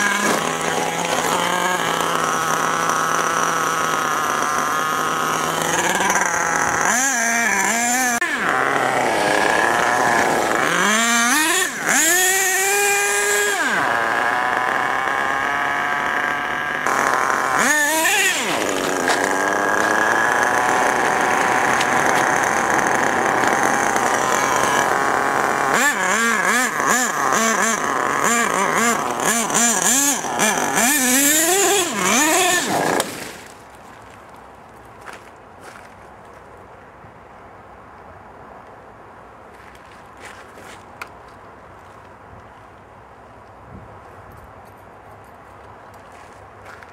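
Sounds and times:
small nitro engine revving: 0:00.0 - 0:33.7.

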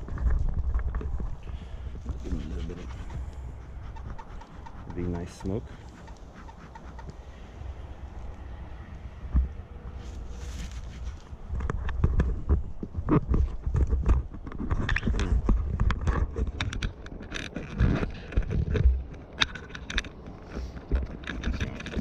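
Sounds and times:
low microphone rumble: 0:00.0 - 0:06.3.

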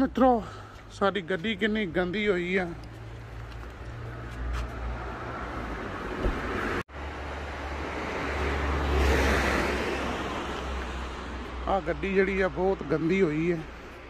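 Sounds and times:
traffic rumble and hiss: 0:00.0 - 0:14.0
vehicle passing: 0:02.9 - 0:13.8.

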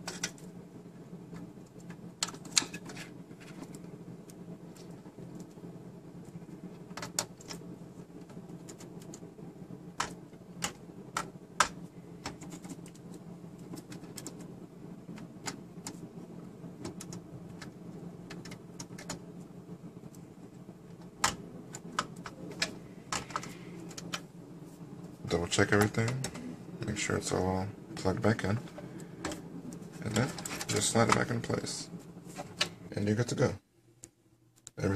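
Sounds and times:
steady low hum: 0:00.0 - 0:34.9
cables and connectors clicking: 0:06.2 - 0:09.3, 0:09.9 - 0:14.5, 0:15.1 - 0:19.3, 0:20.9 - 0:24.3, 0:25.6 - 0:26.5.

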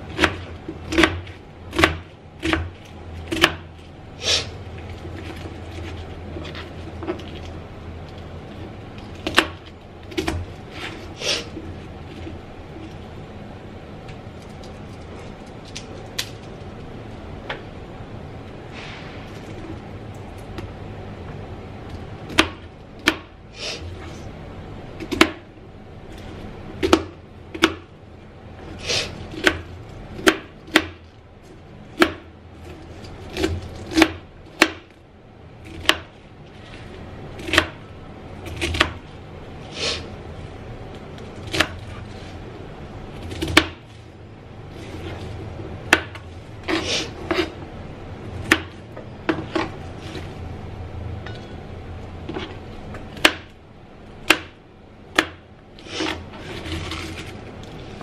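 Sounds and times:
knife chopping on cutting board: 0:00.1 - 0:02.7, 0:03.3 - 0:03.7.

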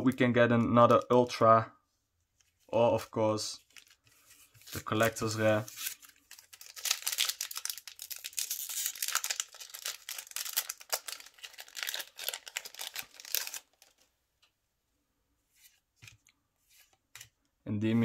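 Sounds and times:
foil wrapper tearing and crinkling: 0:04.7 - 0:14.0.

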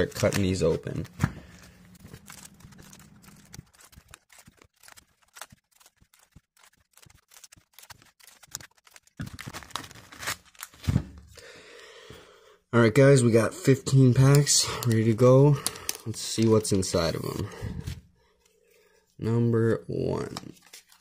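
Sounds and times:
scissors snipping plastic: 0:00.0 - 0:01.2, 0:02.0 - 0:10.8
plastic crinkling: 0:00.0 - 0:11.3.

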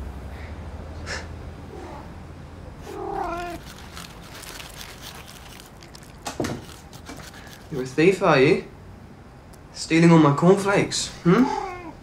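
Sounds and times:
cat meowing: 0:02.8 - 0:03.6, 0:11.4 - 0:12.0
cornflakes crunching: 0:02.8 - 0:08.2.

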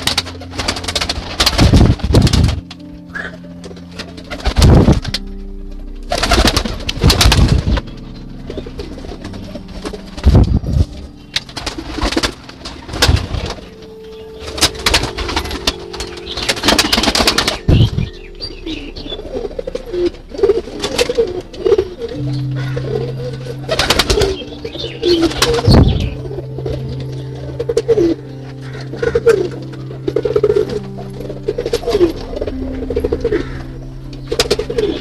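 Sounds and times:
pigeons cooing: 0:00.0 - 0:05.2, 0:06.1 - 0:35.0
soft background music: 0:00.0 - 0:35.0.

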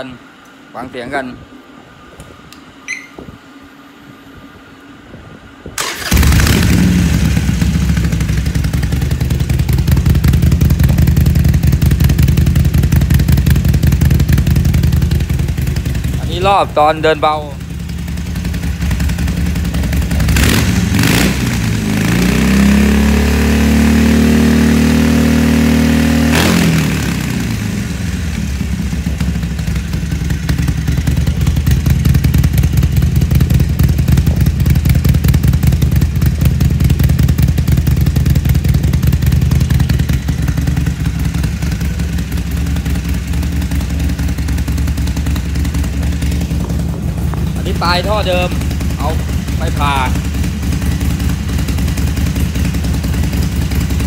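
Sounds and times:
motorcycle engine revving: 0:05.8 - 0:54.0
motorcycle engine idling: 0:05.9 - 0:24.2, 0:27.0 - 0:54.0.

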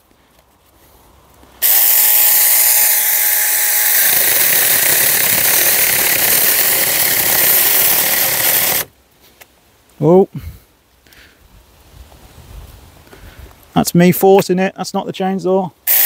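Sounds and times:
chainsaw sawing through wood: 0:01.6 - 0:08.9
electric chainsaw motor whine: 0:01.6 - 0:08.9.

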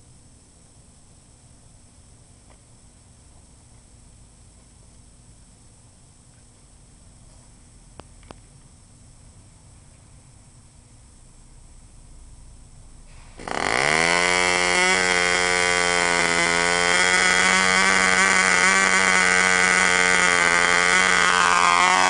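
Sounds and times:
model engine high-pitched whine: 0:13.1 - 0:22.0.

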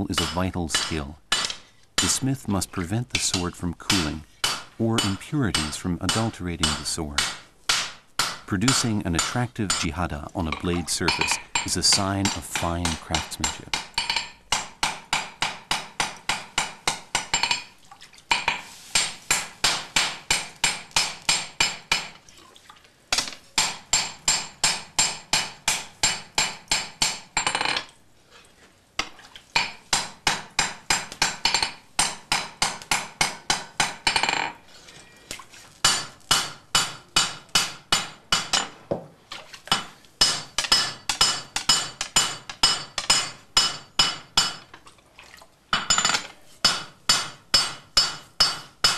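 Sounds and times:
hammer striking steel on anvil: 0:00.1 - 0:02.2, 0:03.2 - 0:09.9, 0:10.5 - 0:17.7, 0:35.8 - 0:38.8, 0:39.7 - 0:44.7, 0:45.8 - 0:48.9.

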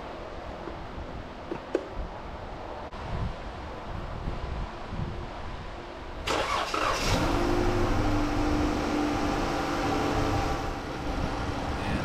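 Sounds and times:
starter motor cranking: 0:06.3 - 0:07.2.

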